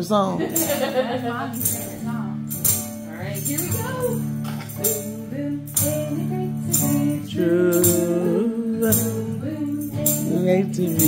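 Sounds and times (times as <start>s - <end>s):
acoustic guitar strumming: 0.0s - 11.0s
tambourine jingling: 0.0s - 11.0s.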